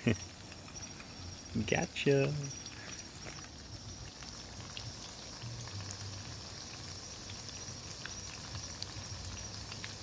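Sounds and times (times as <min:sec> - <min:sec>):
fish frying in hot oil: 0:00.0 - 0:10.0.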